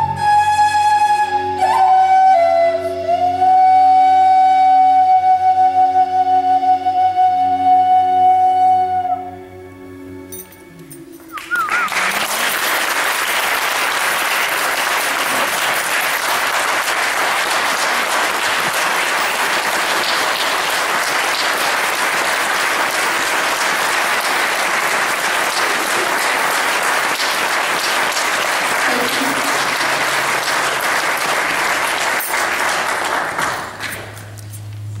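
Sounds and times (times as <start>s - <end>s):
audience applauding: 11.3s - 34.5s.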